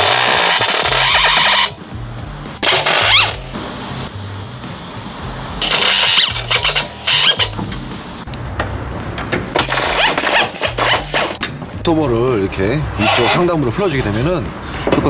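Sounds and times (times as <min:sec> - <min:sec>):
impact wrench whining bursts: 0:00.0 - 0:01.8, 0:02.6 - 0:03.5, 0:05.6 - 0:07.6.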